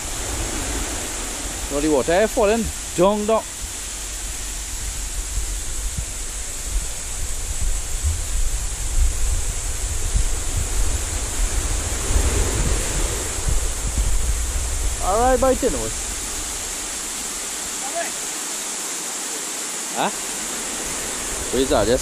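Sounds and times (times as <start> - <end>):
wind buffeting microphone: 0.0 - 17.6
sea surf rushing: 0.0 - 22.0
small waterfall: 0.0 - 22.0.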